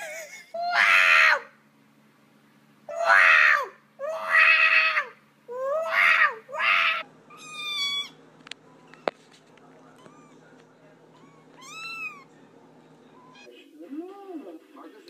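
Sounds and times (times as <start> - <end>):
cat yowling: 0.6 - 1.5, 2.9 - 8.2, 10.0 - 10.4, 11.1 - 12.3
kittens mewing: 2.9 - 8.2, 9.9 - 12.3, 13.1 - 13.6.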